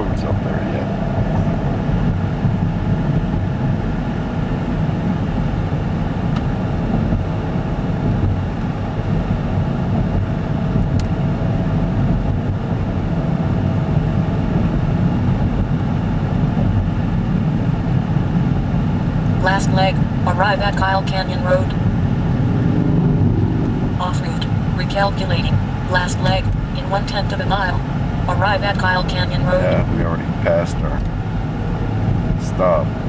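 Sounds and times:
car engine and road noise: 0:00.0 - 0:33.0.

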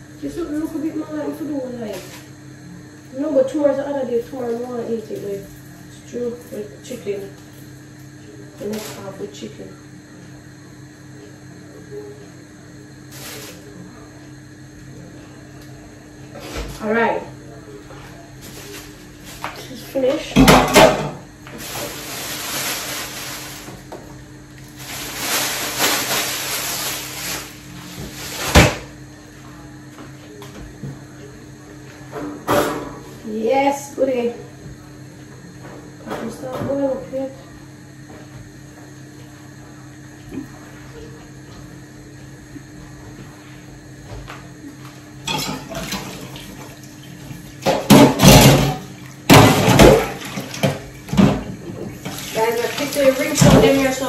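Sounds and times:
water running from a tap: 0:48.9 - 0:54.0.

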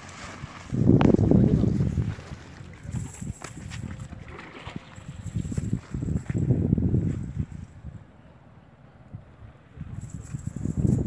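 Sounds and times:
fishing net rustling and crackling: 0:00.0 - 0:07.7, 0:09.9 - 0:11.0
wind rumble on microphone: 0:00.0 - 0:11.0.

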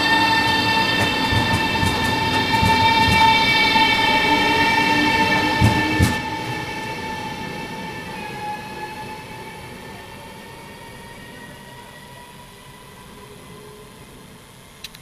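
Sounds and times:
train wheels clacking over rail joint: 0:00.0 - 0:06.6
electric train whine: 0:00.0 - 0:15.0.

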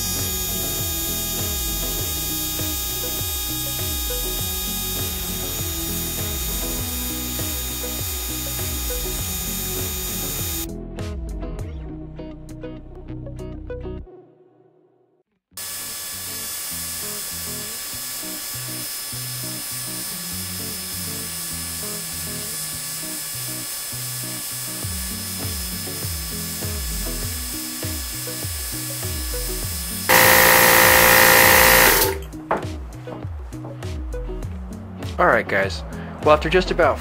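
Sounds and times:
air compressor running: 0:00.0 - 0:10.7, 0:15.6 - 0:32.3
background music with bass line: 0:00.0 - 0:14.1, 0:24.8 - 0:37.0.

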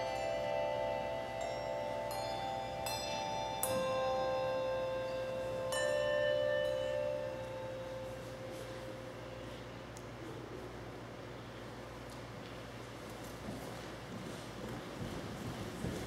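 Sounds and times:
handbells ringing: 0:00.0 - 0:09.8.

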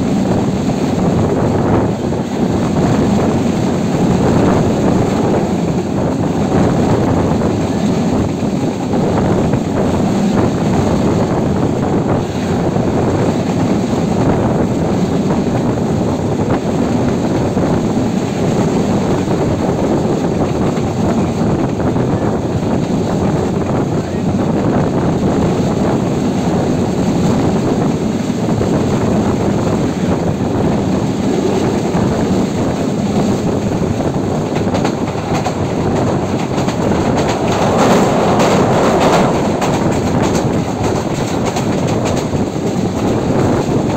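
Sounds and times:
train wheels rumbling on track: 0:00.0 - 0:43.9
wind rushing over microphone: 0:00.0 - 0:43.9.

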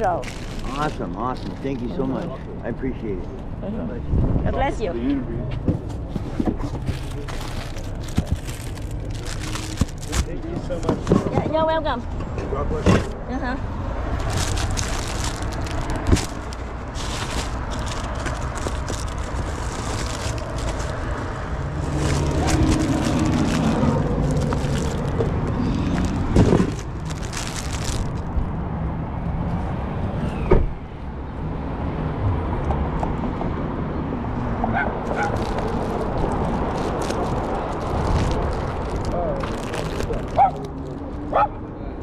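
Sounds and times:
plastic packets crinkling: 0:00.0 - 0:02.0, 0:06.8 - 0:10.4, 0:14.1 - 0:28.4, 0:35.1 - 0:41.0
traffic rumble: 0:00.0 - 0:42.0
wind: 0:00.0 - 0:42.0
cardboard box being handled: 0:06.2 - 0:11.4, 0:14.2 - 0:28.2.

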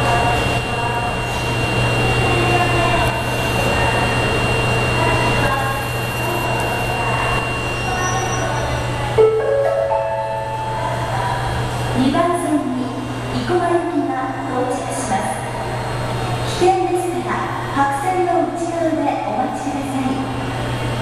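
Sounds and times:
platform announcement: 0:00.0 - 0:15.3
indistinct voices: 0:00.0 - 0:21.0
ventilation and machinery hum: 0:00.0 - 0:21.0
faint high tone: 0:04.9 - 0:11.6
public address chime: 0:04.9 - 0:14.7.

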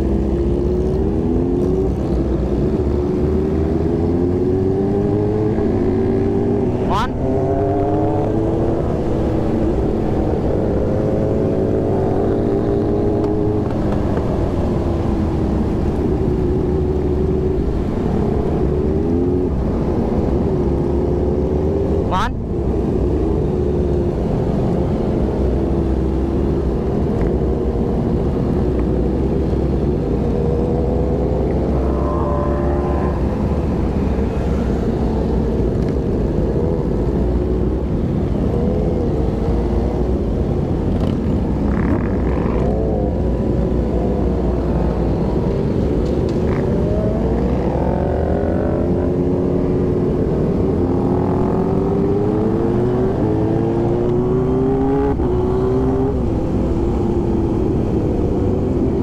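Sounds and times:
motorcycle engines revving: 0:00.0 - 0:59.0.

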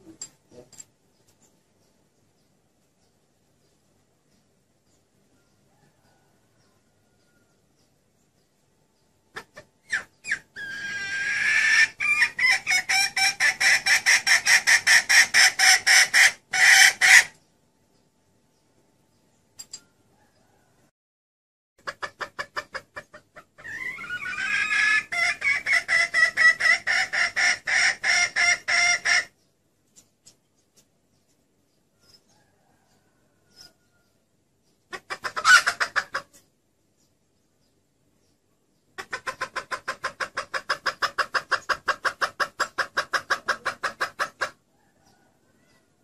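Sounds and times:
hen clucking and cackling: 0:09.2 - 0:17.5, 0:21.8 - 0:29.5, 0:31.8 - 0:36.5, 0:38.9 - 0:46.0.

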